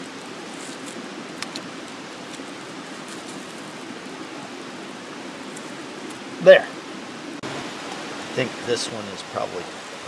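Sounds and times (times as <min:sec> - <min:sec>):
campfire crackling: 0:00.0 - 0:10.0.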